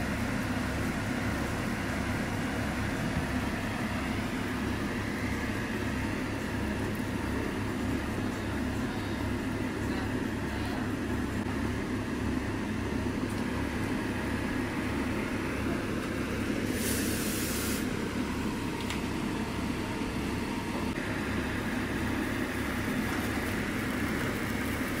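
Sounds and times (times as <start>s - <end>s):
low machine rumble: 0.0s - 25.0s
brief hiss: 16.7s - 18.0s.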